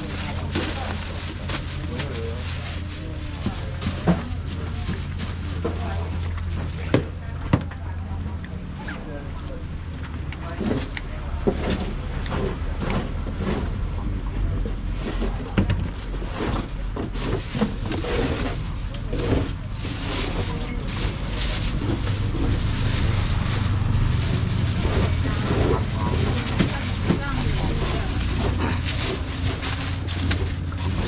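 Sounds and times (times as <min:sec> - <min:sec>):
plastic bag rustling: 0:00.0 - 0:06.6, 0:16.0 - 0:31.0
faint background voices: 0:00.0 - 0:31.0
low rumble: 0:17.8 - 0:31.0.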